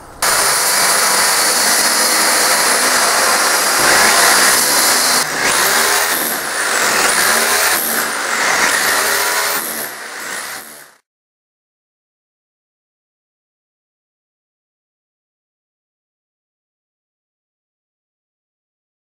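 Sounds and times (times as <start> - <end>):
diamond saw cutting brick: 0.2 - 11.0
hammer drill chiselling brick: 0.2 - 11.0.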